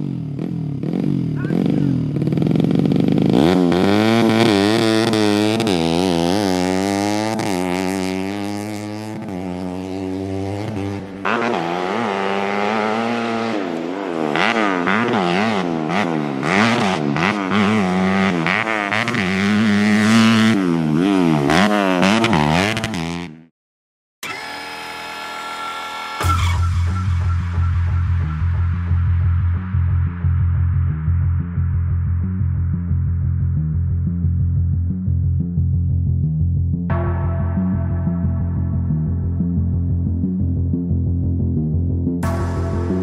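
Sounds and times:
dirt bike engine revving: 0:00.0 - 0:23.5, 0:42.2 - 0:43.0.

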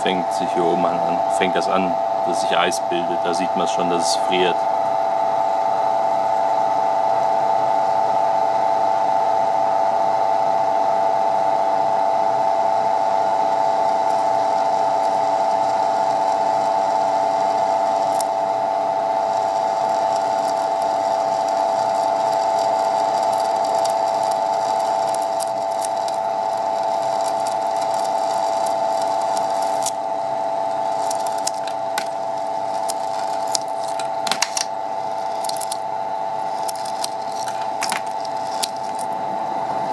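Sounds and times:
ice machine droning: 0:00.0 - 0:09.1, 0:11.8 - 0:39.9
ice flakes crackling off drum: 0:19.3 - 0:30.0, 0:30.8 - 0:35.8, 0:36.4 - 0:39.1.

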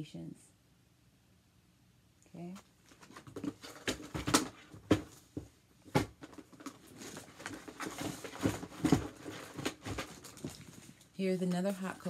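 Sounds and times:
cardboard and packaging rustling: 0:02.5 - 0:12.0
boxes knocking on a table: 0:03.1 - 0:10.6.

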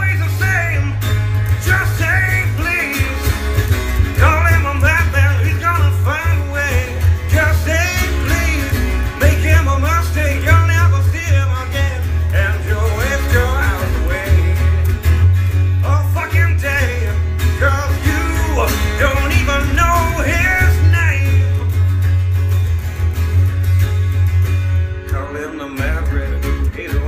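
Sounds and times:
electric bass guitar: 0:00.0 - 0:27.0
strummed acoustic guitar: 0:00.0 - 0:27.0
person singing: 0:01.6 - 0:03.4, 0:04.2 - 0:14.9, 0:15.8 - 0:21.8, 0:25.0 - 0:27.0.

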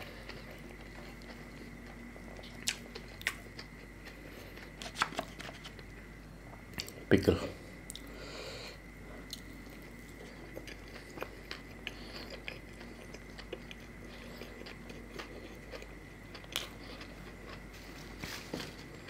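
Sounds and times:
person chewing and biting: 0:00.0 - 0:07.0, 0:09.2 - 0:17.7
small crunches: 0:00.0 - 0:07.0.

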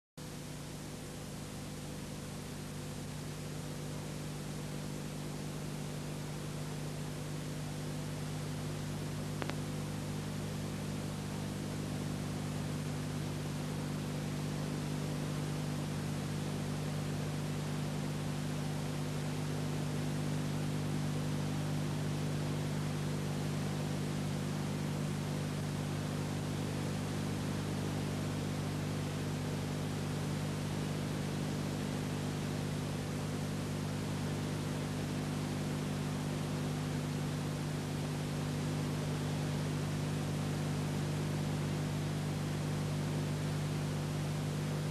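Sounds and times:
low electrical hum: 0:00.2 - 0:44.9
recording hiss: 0:00.6 - 0:41.8
faint click: 0:09.3 - 0:09.7.

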